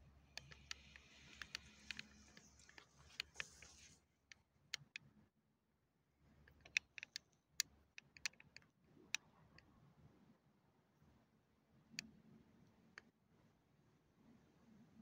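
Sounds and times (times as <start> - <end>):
faint sharp clicks: 0.0 - 4.0.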